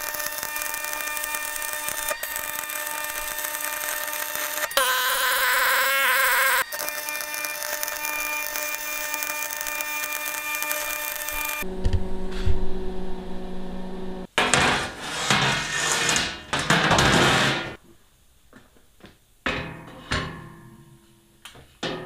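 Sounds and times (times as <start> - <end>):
steel plate scraping and grinding: 0.0 - 4.9, 14.4 - 17.8.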